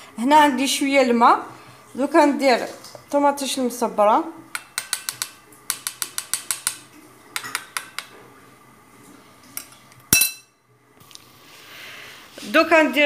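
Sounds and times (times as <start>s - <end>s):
metal spoon clinking in bowl: 10.1s - 10.6s.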